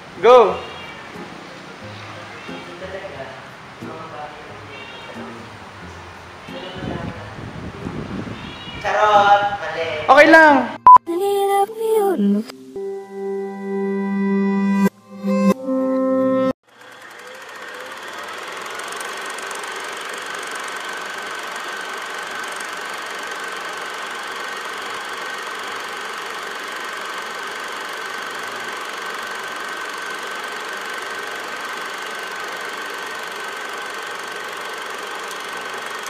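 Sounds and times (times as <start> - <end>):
film projector whirring rattle: 16.6 - 36.0.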